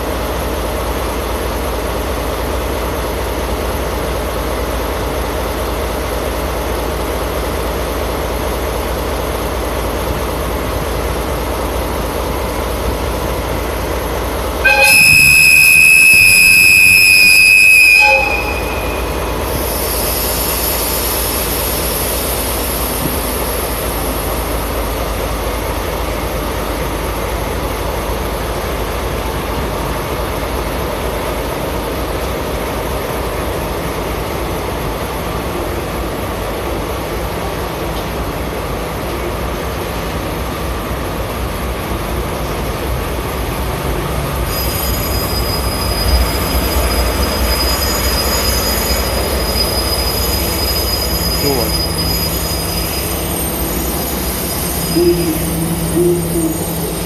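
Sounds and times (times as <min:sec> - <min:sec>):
diesel locomotive idling: 0:00.0 - 0:57.0
high-pitched train horn blast: 0:14.6 - 0:20.2, 0:44.5 - 0:57.0
hiss: 0:19.5 - 0:24.4.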